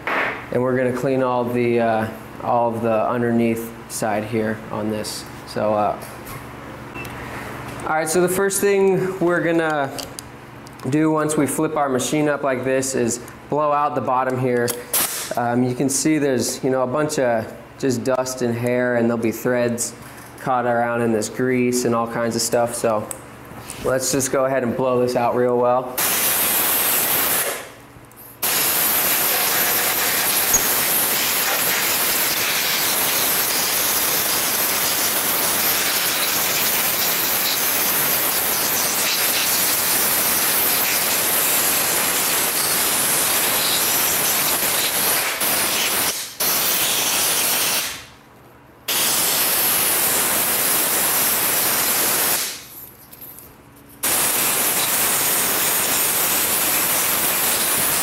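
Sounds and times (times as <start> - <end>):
compressed air hissing: 26.0 - 27.8, 28.4 - 48.1, 48.9 - 52.7, 54.0 - 58.0.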